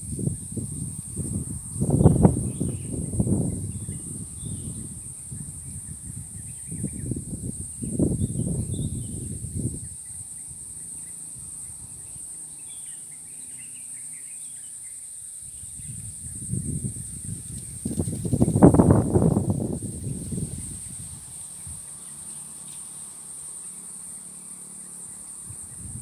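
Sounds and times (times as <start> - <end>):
wind buffeting microphone: 0.0 - 12.1, 15.5 - 21.9, 25.4 - 26.0
high-pitched insect drone: 0.0 - 26.0.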